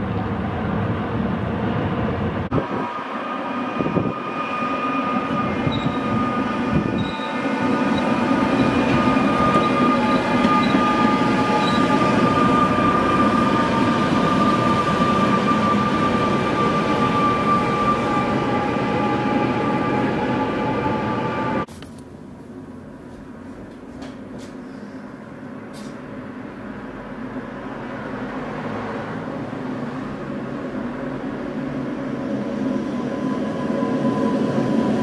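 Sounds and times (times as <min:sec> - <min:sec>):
train rumble on tracks: 0:00.0 - 0:35.0
high metallic whine: 0:02.6 - 0:21.7.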